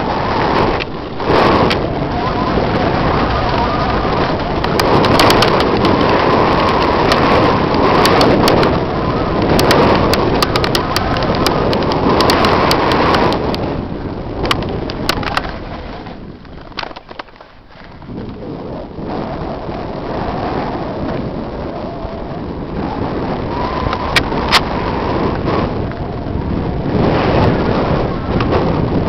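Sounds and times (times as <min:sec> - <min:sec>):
tyre noise on dirt: 0:00.0 - 0:18.6
wind rushing: 0:00.0 - 0:29.0
bike clicks and rattles: 0:00.1 - 0:18.4, 0:23.8 - 0:29.0.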